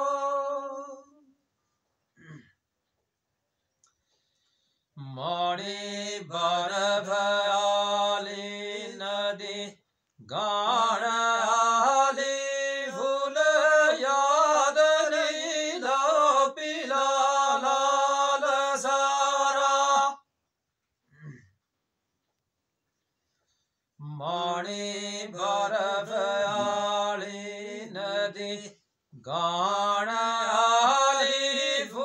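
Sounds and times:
man singing unaccompanied: 0.0 - 1.4, 5.0 - 20.3, 24.0 - 32.0.

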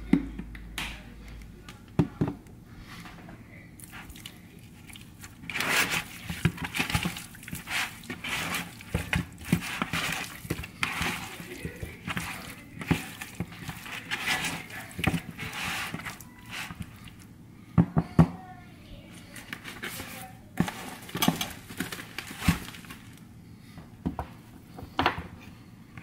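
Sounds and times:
wet squelches and slaps of chicken: 3.8 - 17.3.

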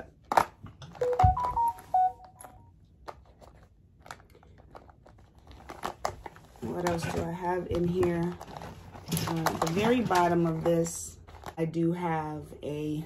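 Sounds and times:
electronic beeps: 1.0 - 2.5
plastic pouch rustling: 3.0 - 7.2, 7.8 - 11.6.

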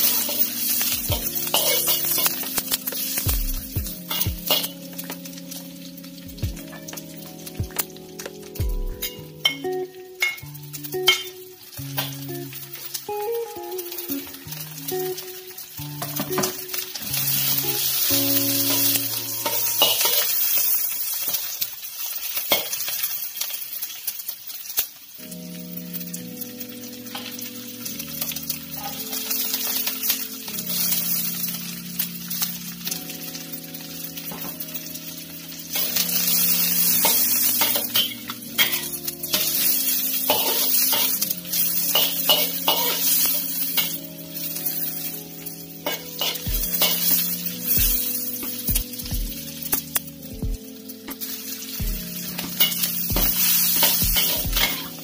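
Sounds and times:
metal spatula scraping a wok: 0.0 - 3.2, 4.0 - 4.8, 17.3 - 21.0, 35.7 - 44.0, 45.8 - 47.8, 52.3 - 55.0
background music: 0.0 - 20.8, 25.1 - 55.0
food sizzling in hot oil: 0.0 - 55.0.

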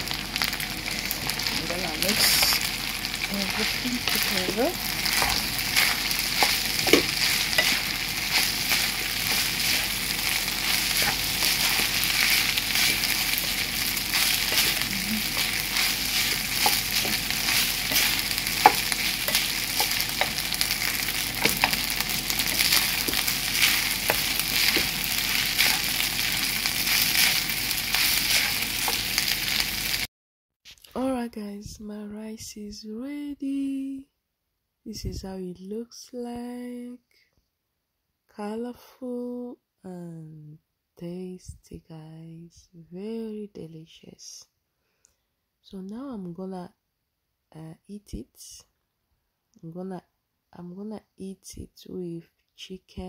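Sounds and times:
rice sizzling in a pan: 0.0 - 30.1
wooden spatula scraping and tapping: 3.4 - 29.4.

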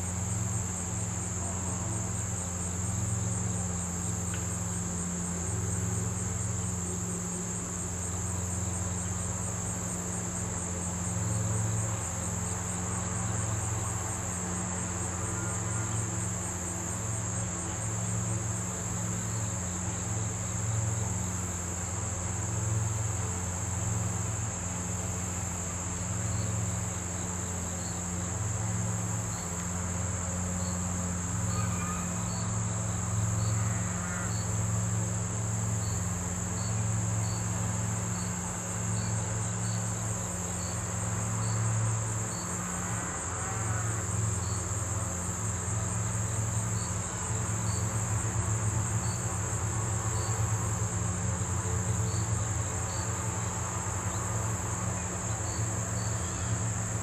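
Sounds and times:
crickets trilling: 0.0 - 57.0.

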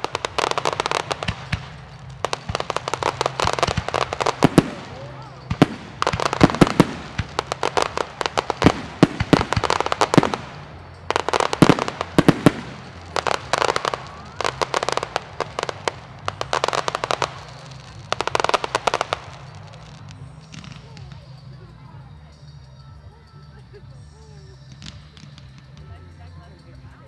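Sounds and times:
firework bangs: 0.0 - 21.1
firework crackling: 0.0 - 22.3, 24.2 - 26.1.

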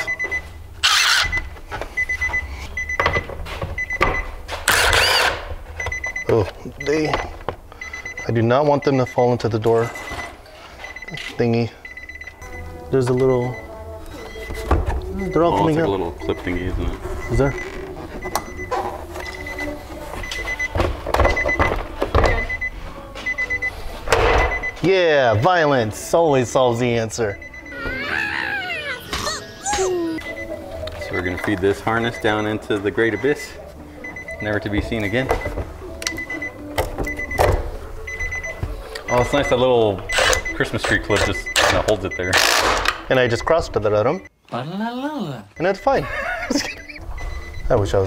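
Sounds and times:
high electronic chime beeping: 27.6 - 30.5.

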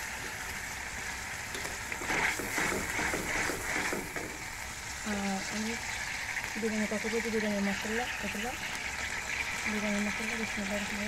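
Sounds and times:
masala sizzling in oil: 0.0 - 11.0.

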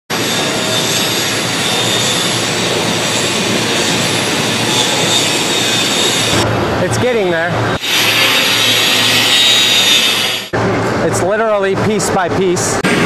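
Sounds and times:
angle grinder grinding steel: 0.1 - 6.4, 7.8 - 10.5.

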